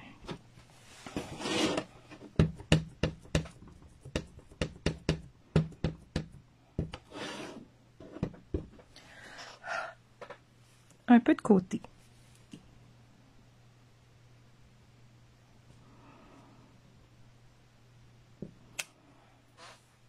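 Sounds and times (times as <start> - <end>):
stamp tapping on ink pad: 2.4 - 7.0.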